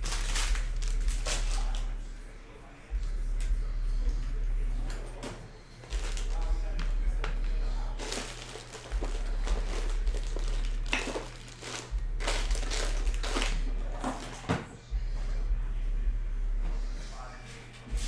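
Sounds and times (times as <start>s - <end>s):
packaging ripping and crinkling: 0.0s - 1.9s, 8.0s - 13.6s
steady low hum: 0.0s - 18.0s.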